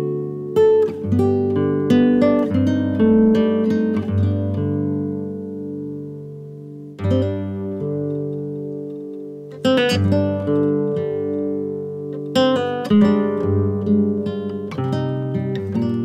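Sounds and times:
acoustic guitar chords: 0:00.0 - 0:16.0.

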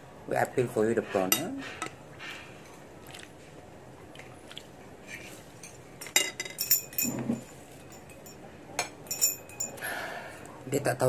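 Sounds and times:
cutlery clinking on plate: 0:05.6 - 0:09.8.

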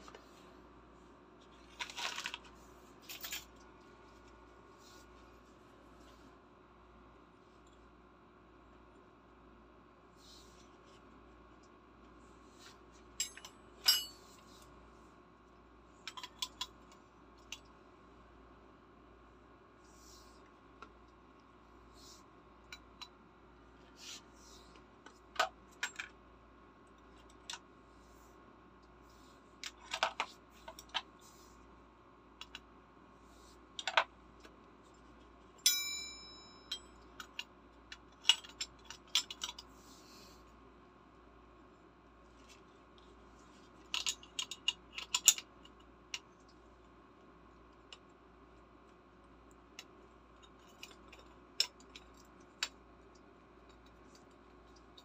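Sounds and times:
metal clinking: 0:13.2 - 0:14.4, 0:35.7 - 0:36.9
metal wrenches clinking: 0:13.2 - 0:14.4.

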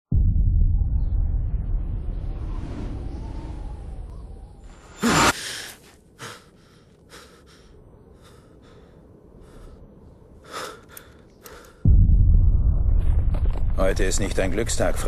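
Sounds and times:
man breathing hard: 0:05.0 - 0:11.9.

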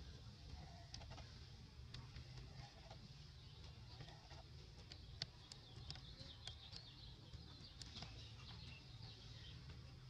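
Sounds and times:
distant bird chirps: 0:02.0 - 0:10.0.

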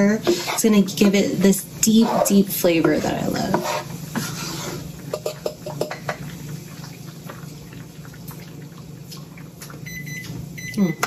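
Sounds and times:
spatula stirring thick sauce: 0:00.0 - 0:05.1.

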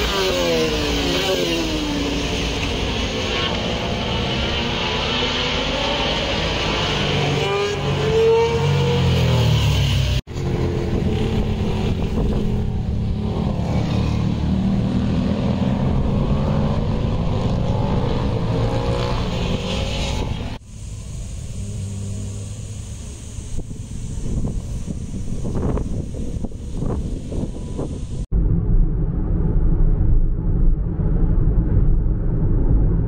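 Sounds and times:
vehicle engines revving: 0:00.0 - 0:28.3
wind-like hiss: 0:19.6 - 0:28.3.

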